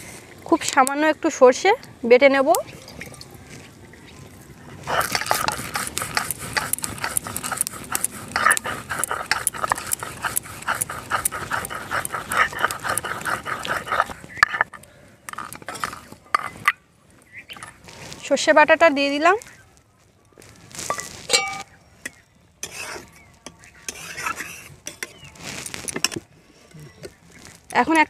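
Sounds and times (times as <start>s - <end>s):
stone scraping on stone: 4.9s - 16.8s, 22.6s - 23.2s, 23.9s - 26.2s.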